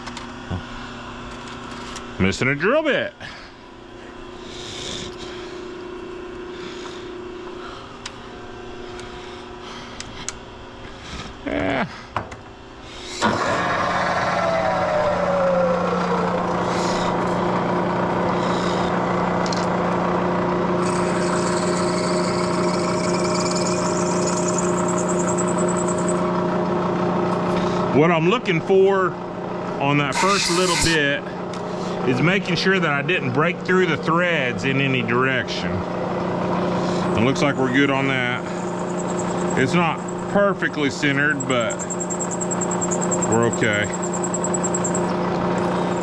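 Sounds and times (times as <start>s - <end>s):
milling machine spindle running: 13.4s - 26.8s, 35.8s - 46.0s.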